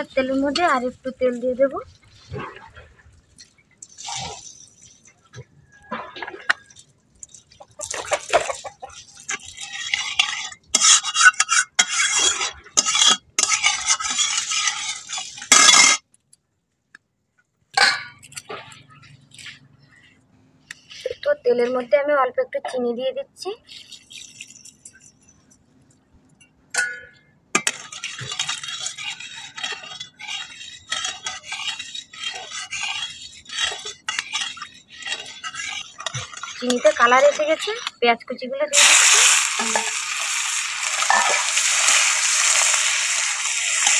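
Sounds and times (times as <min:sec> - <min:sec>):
spatula scraping a wok: 0:03.3 - 0:06.8, 0:07.5 - 0:16.0, 0:18.3 - 0:21.3, 0:23.6 - 0:25.6, 0:27.6 - 0:38.0, 0:38.7 - 0:43.9.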